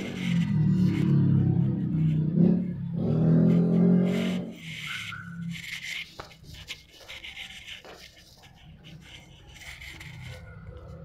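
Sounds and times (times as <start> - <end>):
handling rubbing and rustling: 4.4 - 11.0.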